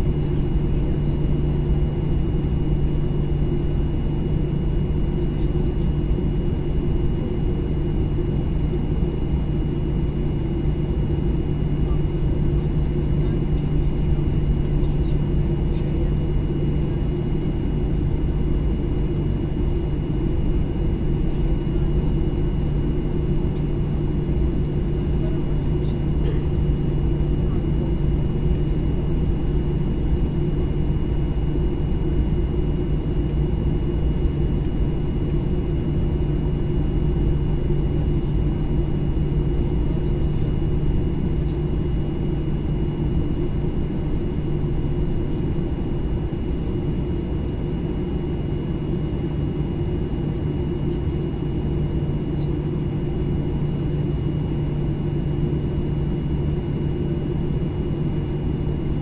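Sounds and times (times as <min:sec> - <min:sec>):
jet cabin engine rumble: 0:00.0 - 0:59.0.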